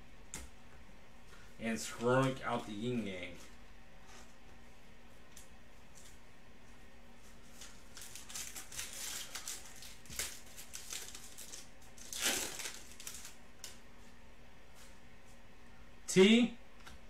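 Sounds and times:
foil wrapper crinkling and tearing: 7.5s - 13.8s.

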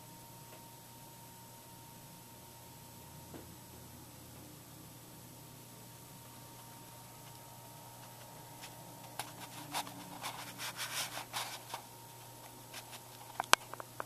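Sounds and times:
faint steady hum: 0.0s - 14.0s
hands rubbing on camera: 8.0s - 13.4s.

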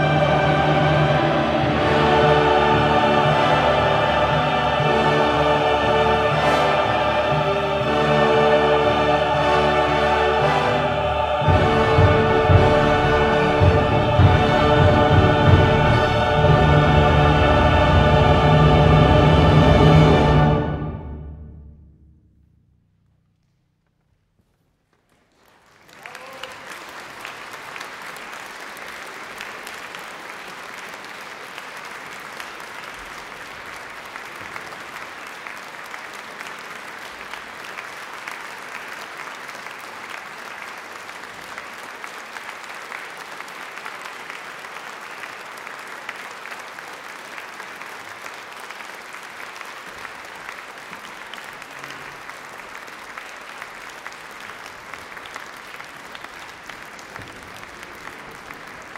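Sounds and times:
audience applauding: 24.9s - 58.9s.

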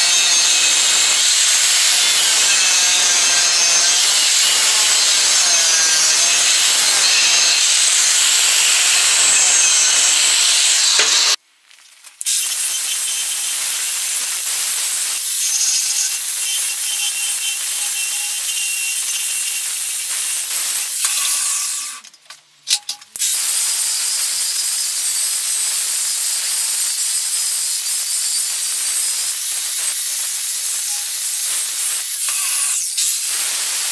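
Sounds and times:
angle grinder grinding steel: 0.0s - 11.4s.

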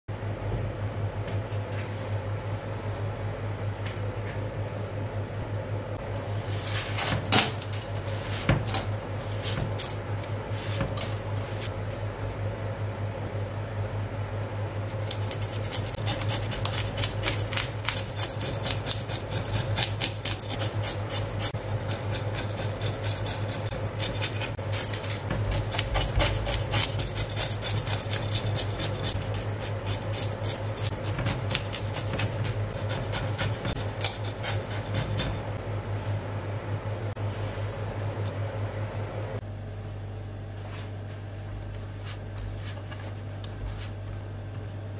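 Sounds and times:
knife scraping fish scales: 14.9s - 35.6s.

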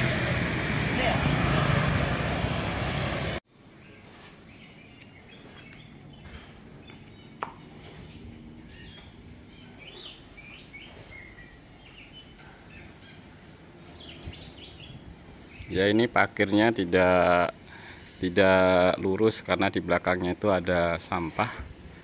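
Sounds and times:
loud street noise: 0.0s - 3.4s
small birds chirping: 3.8s - 16.1s.

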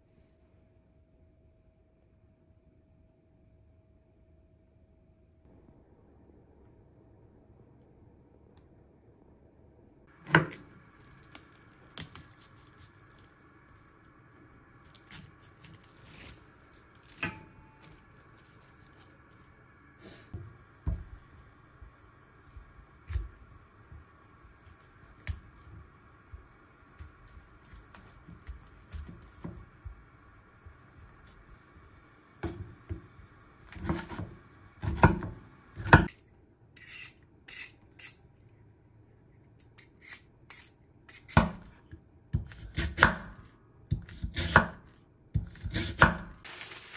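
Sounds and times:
peeler scraping vegetable: 36.8s - 38.2s, 39.8s - 41.4s.

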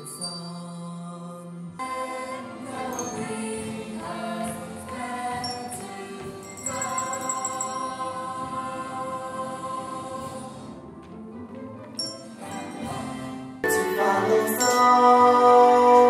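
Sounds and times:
choir singing held chords: 0.8s - 16.0s
musical accompaniment: 1.8s - 16.0s.

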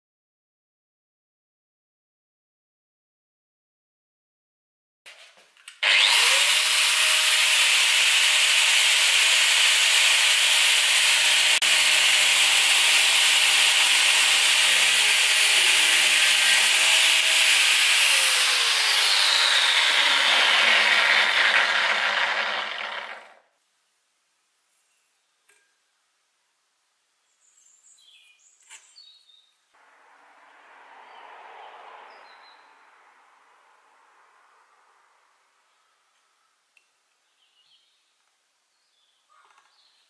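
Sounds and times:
angle grinder cutting steel: 5.8s - 23.4s.

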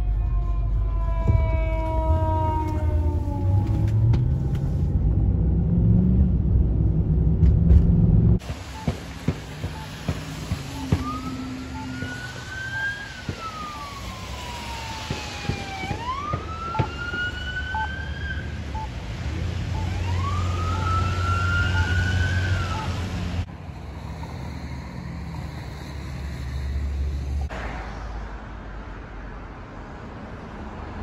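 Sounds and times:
police siren wailing: 0.0s - 4.6s, 8.8s - 23.4s
passing traffic: 0.0s - 31.0s.

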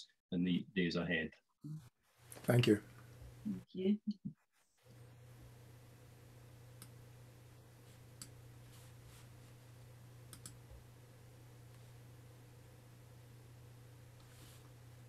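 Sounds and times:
steady low hum: 4.8s - 15.0s.

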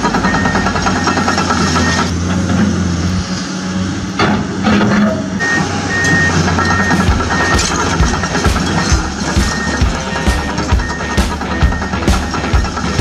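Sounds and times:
excavator engine rumbling: 0.0s - 13.0s
reversing alarm beeps: 0.2s - 2.1s, 5.4s - 13.0s.

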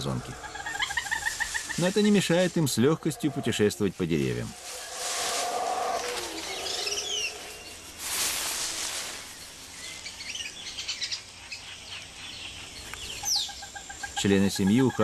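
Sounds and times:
birds chirping: 0.0s - 8.0s, 8.9s - 15.0s
short hiss of noise: 8.0s - 9.3s.

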